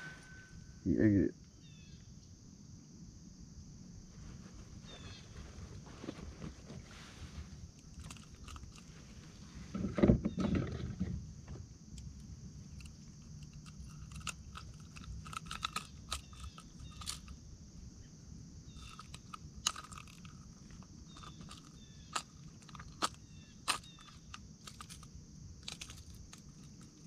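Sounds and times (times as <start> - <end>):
bump and rustle: 4.1 - 17.4, 18.8 - 27.0
pliers clicking and scraping: 12.8 - 17.3, 18.8 - 27.0.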